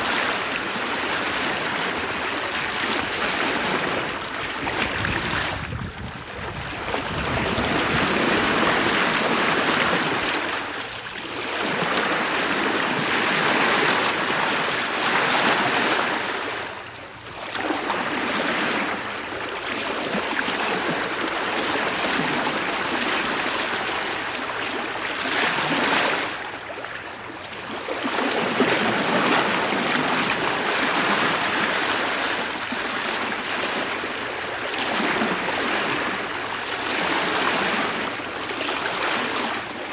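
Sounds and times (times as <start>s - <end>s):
water rushing along ship's bow: 0.0s - 39.9s.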